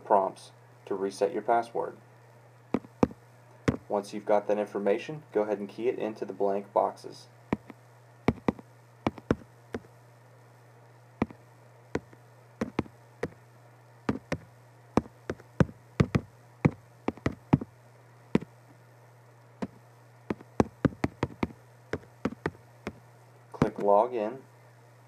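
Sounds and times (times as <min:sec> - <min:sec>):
low hum: 0:07.4 - 0:23.9.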